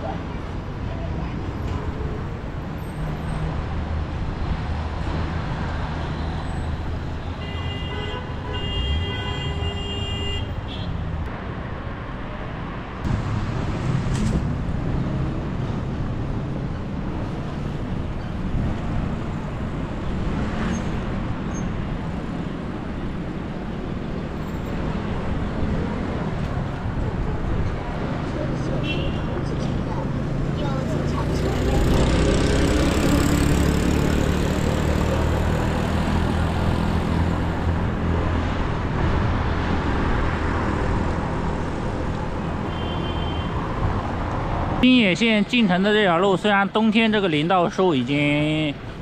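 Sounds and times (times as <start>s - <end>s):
road traffic rumble: 0.0s - 49.0s
vehicle horn: 7.3s - 11.0s, 42.7s - 43.6s
vehicle passing: 29.4s - 41.6s.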